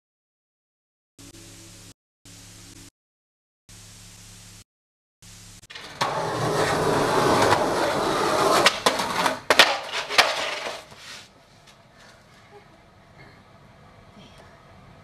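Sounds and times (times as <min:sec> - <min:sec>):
skateboard clacking on ground: 0:05.7 - 0:11.1
skateboard grinding a bench: 0:05.7 - 0:11.3
skateboard wheels rolling on concrete: 0:05.7 - 0:11.8.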